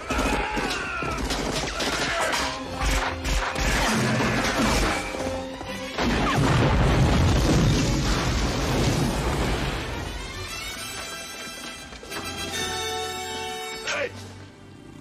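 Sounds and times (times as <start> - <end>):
dramatic music: 0.0 - 14.8
crashing debris: 5.9 - 10.1.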